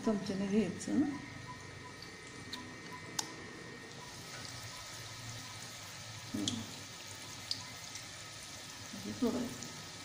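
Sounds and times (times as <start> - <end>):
batter sizzling in hot oil: 3.8 - 10.0.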